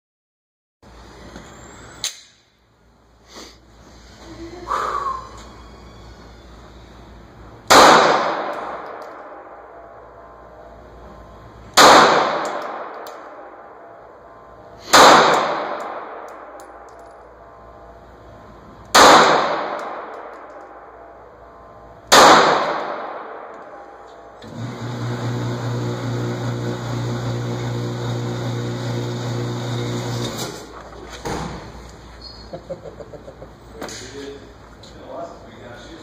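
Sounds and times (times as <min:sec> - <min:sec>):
pistol shots echoing indoors: 0:07.6 - 0:10.7, 0:11.7 - 0:17.9, 0:18.8 - 0:24.3.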